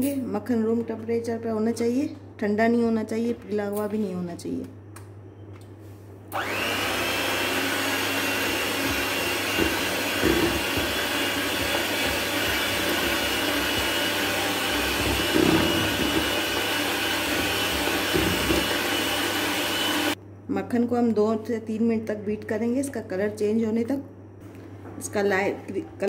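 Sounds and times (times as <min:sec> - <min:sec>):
electric hand mixer whining: 0:06.4 - 0:20.2.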